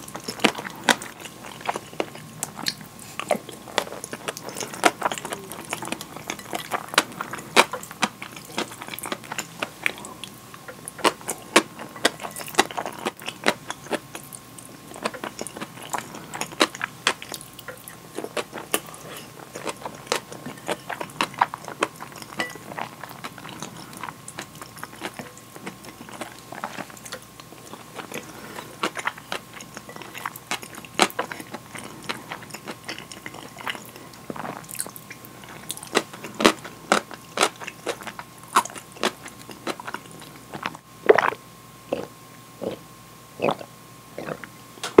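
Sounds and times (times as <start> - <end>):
wet chewing: 0.0 - 42.8
gulping drink: 1.2 - 7.9, 43.4 - 45.0.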